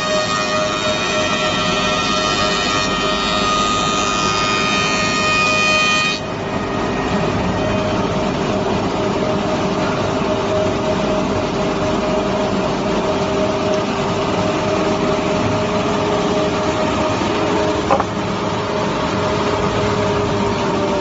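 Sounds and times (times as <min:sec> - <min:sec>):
moulder machine humming: 0:06.3 - 0:21.0.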